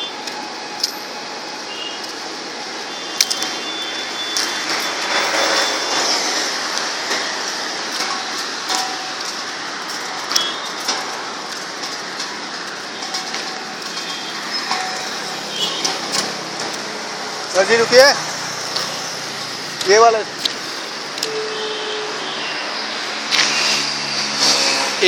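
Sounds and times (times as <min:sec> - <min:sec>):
vehicle road and wind noise: 0:00.0 - 0:25.0
rattles and clicks: 0:04.4 - 0:17.0.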